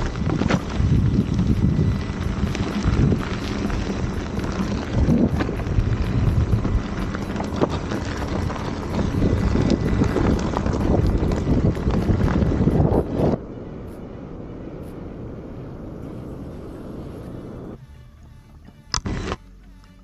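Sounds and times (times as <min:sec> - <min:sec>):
tyre clicking over stones: 0:00.0 - 0:12.7
wind rumble on microphone: 0:00.0 - 0:17.8.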